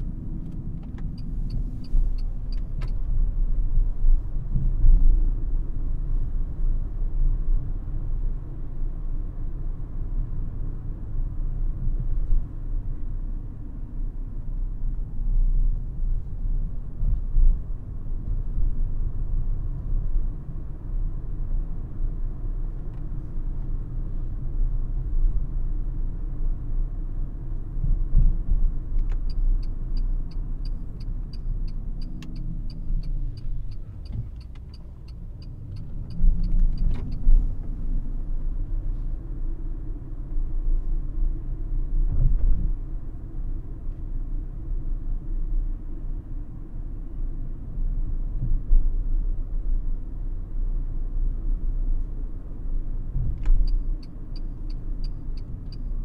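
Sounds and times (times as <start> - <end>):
turn indicator ticking: 0.0 - 3.1, 29.0 - 37.8, 53.5 - 56.0.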